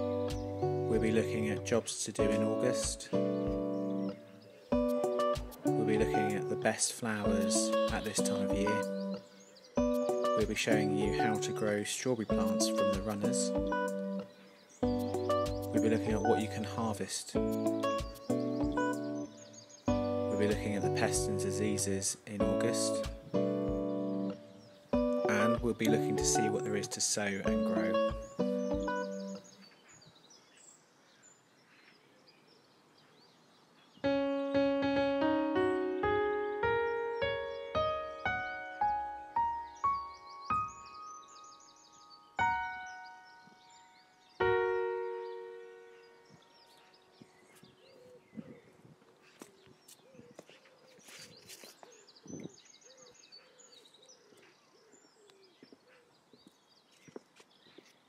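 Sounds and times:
piano melody: 0.0s - 29.6s, 34.0s - 47.9s
faint bird chirps: 0.0s - 34.6s, 36.7s - 58.0s.

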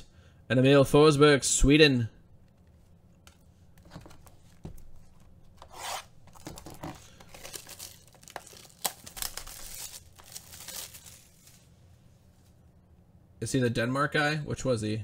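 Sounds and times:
plastic wrap ripping and rustling: 5.7s - 11.7s.

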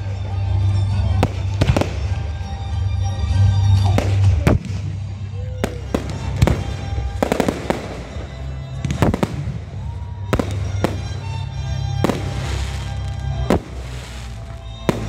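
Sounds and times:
background music: 0.0s - 15.0s
firework crackles: 3.5s - 15.0s
firework shells bursting: 5.7s - 15.0s.

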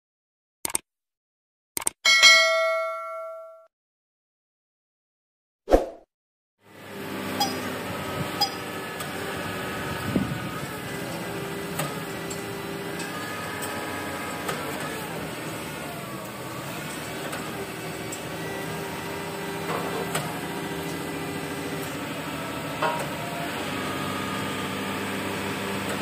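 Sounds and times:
diesel engine humming: 6.7s - 26.0s.

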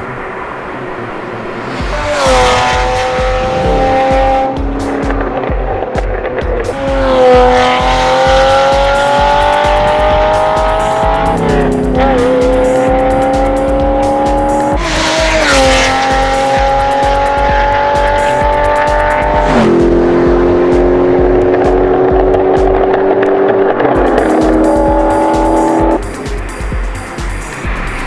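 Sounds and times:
sports car engine accelerating: 0.0s - 28.0s
music with steady beat: 1.7s - 28.0s.

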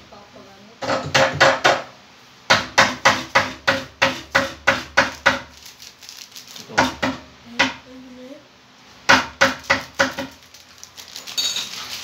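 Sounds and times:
hammer striking wood: 0.9s - 1.9s, 2.5s - 5.4s, 9.1s - 10.3s.

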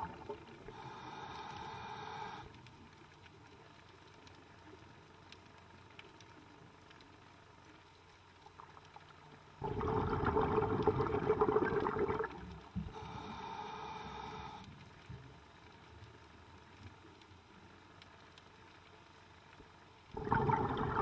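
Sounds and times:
underwater hiss: 0.0s - 2.6s, 9.7s - 14.8s
rush of exhaust bubbles: 9.6s - 12.6s, 20.2s - 21.0s.

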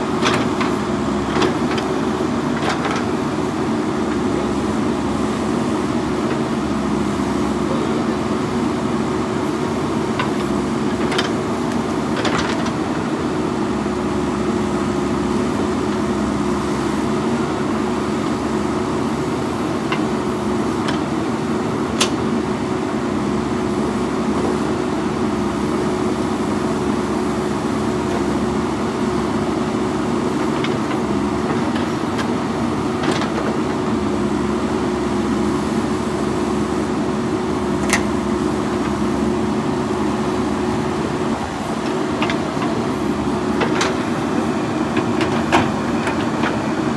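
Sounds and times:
diesel engine humming: 0.0s - 46.9s.

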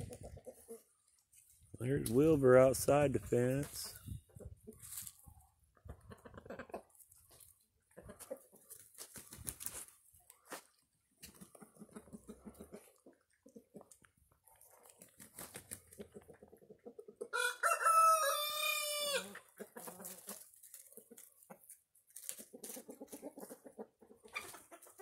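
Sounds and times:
chicken clucking: 0.0s - 1.5s, 2.9s - 25.0s
chickens scratching in straw: 3.0s - 17.0s, 18.4s - 25.0s
rooster crowing: 17.4s - 19.4s.

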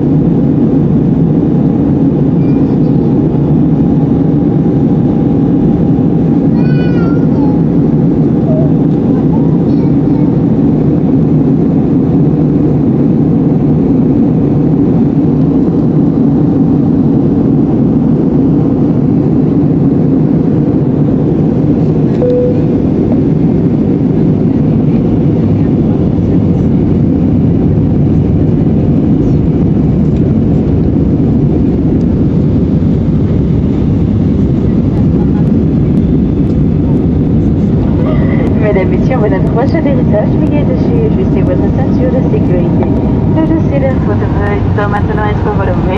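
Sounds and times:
airplane cabin noise: 0.0s - 45.9s
short faint tone: 22.2s - 23.0s.

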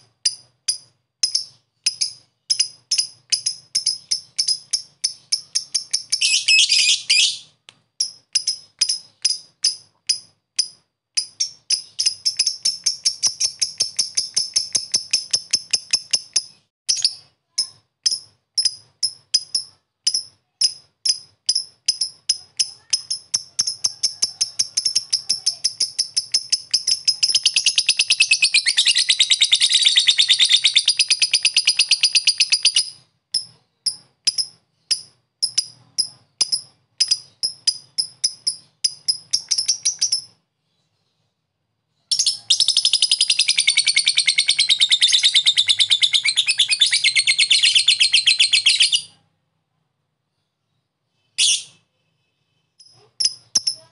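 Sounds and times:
lovebird ticking calls: 0.2s - 7.4s, 8.0s - 17.3s, 18.0s - 40.4s, 42.1s - 49.1s, 52.8s - 53.9s
lovebird fast chattering trills: 1.3s - 7.4s, 21.1s - 35.1s, 42.1s - 49.1s.

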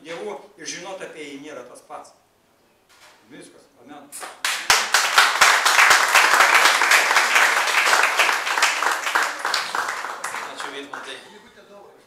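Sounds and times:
audience applauding: 4.4s - 11.2s.

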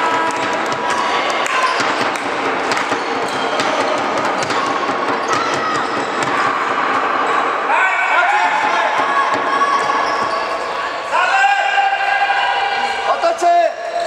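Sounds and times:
ball bouncing on wooden court: 0.0s - 6.7s
shoes thudding and squeaking: 0.1s - 6.6s, 8.7s - 10.6s.

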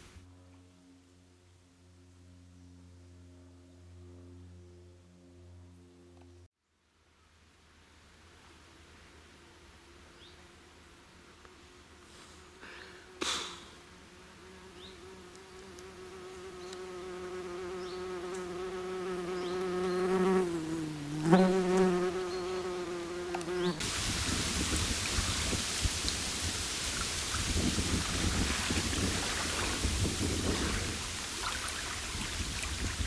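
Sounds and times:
flying insect buzzing: 9.9s - 32.6s
steady rushing noise: 23.8s - 31.4s.

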